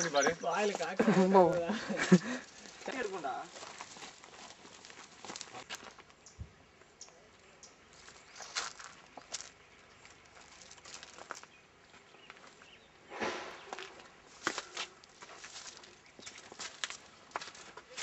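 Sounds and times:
rustling and crackling: 2.0 - 6.2, 8.0 - 11.6.

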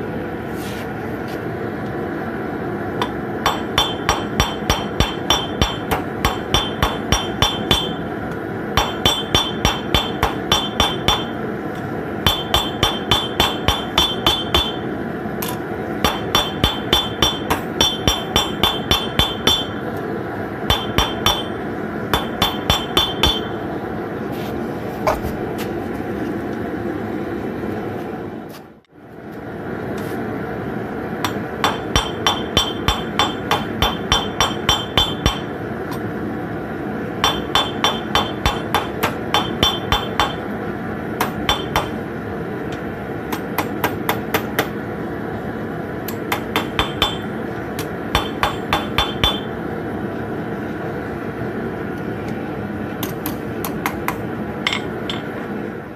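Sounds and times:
hammer striking on anvil: 3.0 - 8.1, 8.8 - 11.4, 12.2 - 19.8, 20.7 - 23.6, 31.2 - 36.1, 37.2 - 40.5, 41.2 - 42.0, 43.3 - 44.8, 46.1 - 49.6, 53.0 - 55.4.

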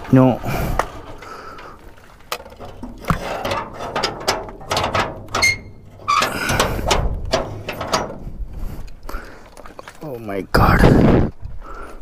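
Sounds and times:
latch clicking and rattling: 2.3 - 8.4
door rumbling and clattering: 2.6 - 8.8
door squeaking: 5.2 - 8.1.

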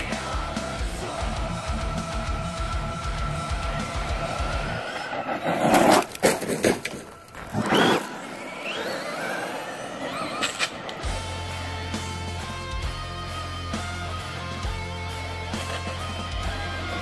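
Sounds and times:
rock music with electric guitar: 0.0 - 5.0, 10.7 - 17.0
tyres scrabbling on gritty asphalt: 4.1 - 11.0
electric motor whining: 7.1 - 17.0.

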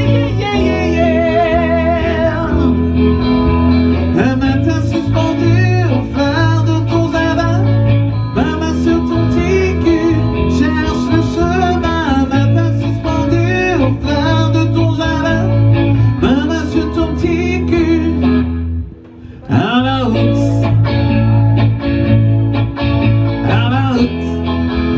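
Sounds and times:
person singing: 0.0 - 3.2, 4.1 - 18.4, 19.2 - 21.2
guitar accompaniment: 0.0 - 24.9.

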